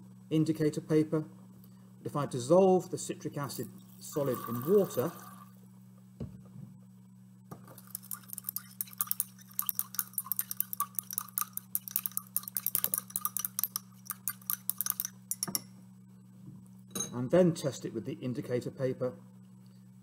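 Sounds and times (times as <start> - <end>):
low steady hum: 0.0 - 20.0
glass rod clinking in beaker: 7.7 - 15.7.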